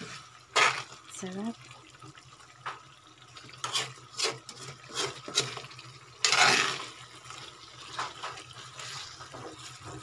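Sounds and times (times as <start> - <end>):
metal spatula scraping wok: 0.0 - 0.9, 3.6 - 7.0.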